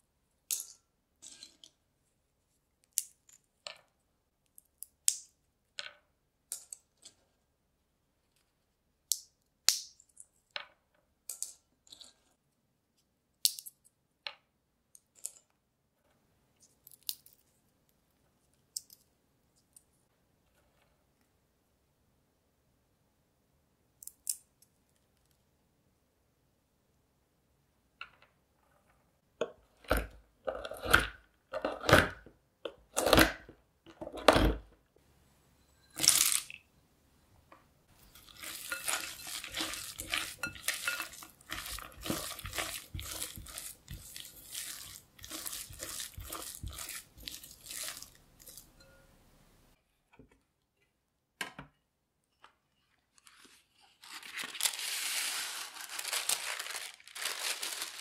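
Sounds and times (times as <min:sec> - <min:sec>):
parchment paper crinkling: 0:38.0 - 0:48.7, 0:53.1 - 0:58.0
spatula scraping glass bowl: 0:38.0 - 0:49.1.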